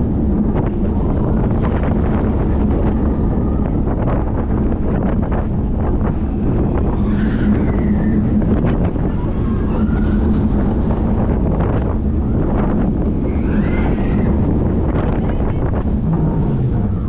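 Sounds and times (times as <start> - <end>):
roller coaster wheels rumbling: 0.0 - 17.0
wind buffeting microphone: 0.0 - 17.0
high-pitched glides: 15.8 - 17.0.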